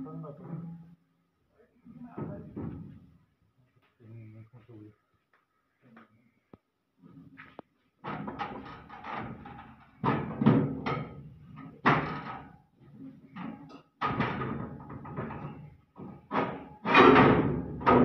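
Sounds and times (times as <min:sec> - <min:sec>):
metal knocks and bangs: 0:02.2 - 0:03.1, 0:08.0 - 0:12.6, 0:13.3 - 0:18.0.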